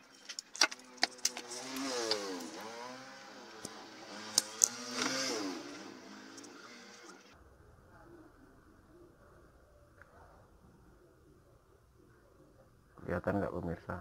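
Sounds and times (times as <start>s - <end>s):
small engine revving: 1.0s - 7.4s.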